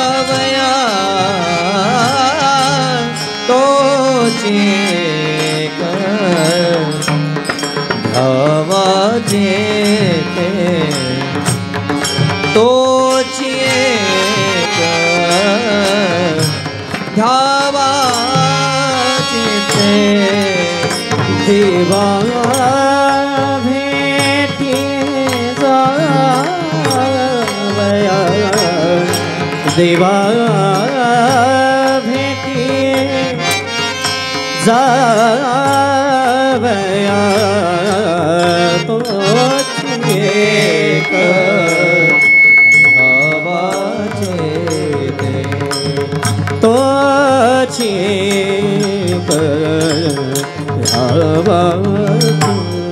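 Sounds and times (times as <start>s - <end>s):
men singing devotional melody: 0.0s - 52.9s
brass hand cymbals clashing: 39.6s - 44.4s.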